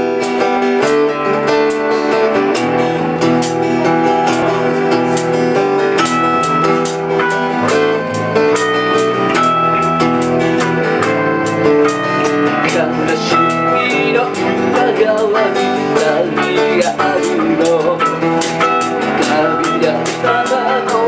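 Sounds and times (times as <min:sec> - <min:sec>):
electric bass: 0:00.0 - 0:21.0
strummed acoustic guitar: 0:00.0 - 0:21.0.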